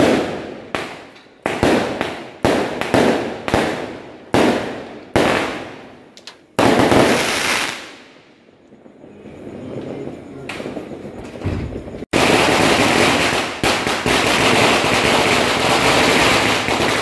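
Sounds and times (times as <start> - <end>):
fireworks bangs with rumble: 0.0 - 5.8, 6.6 - 8.0, 8.8 - 17.0.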